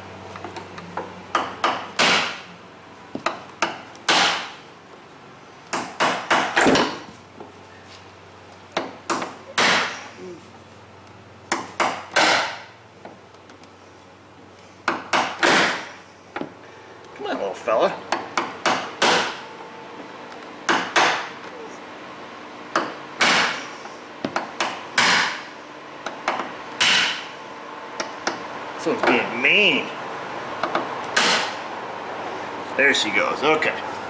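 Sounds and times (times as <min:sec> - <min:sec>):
hammer striking pry bar: 0:11.5 - 0:12.6, 0:14.9 - 0:15.9, 0:20.7 - 0:21.3, 0:24.4 - 0:25.4, 0:26.3 - 0:27.3, 0:31.2 - 0:31.6.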